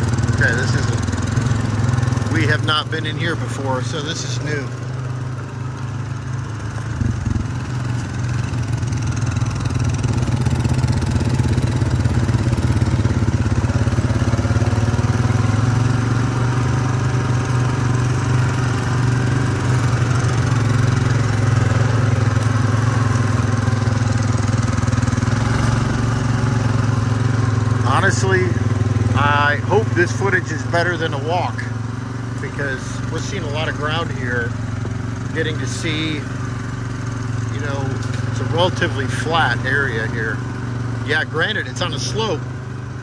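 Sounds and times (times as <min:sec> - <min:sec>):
quad bike engine running: 0:00.0 - 0:43.0.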